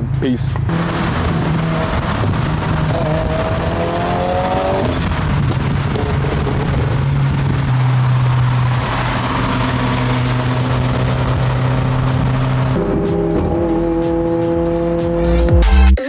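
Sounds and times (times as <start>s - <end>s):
deep bass swell: 0.0s - 16.0s
car rushing past: 0.6s - 14.5s
electronic music with synth: 11.7s - 16.0s.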